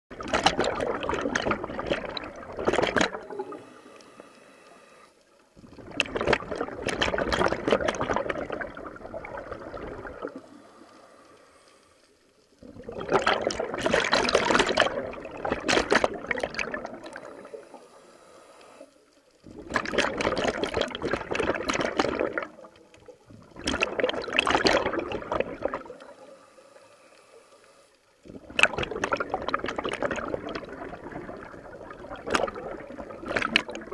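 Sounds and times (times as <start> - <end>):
diver exhaling bubbles underwater: 0.1 - 3.7, 5.6 - 10.6, 12.6 - 17.6, 19.5 - 22.7, 23.3 - 26.1, 28.3 - 33.9.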